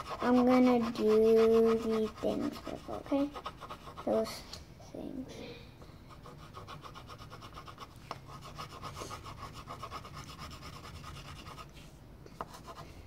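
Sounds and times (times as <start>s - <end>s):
crayon rubbing on paper: 0.0s - 4.1s, 6.2s - 11.9s.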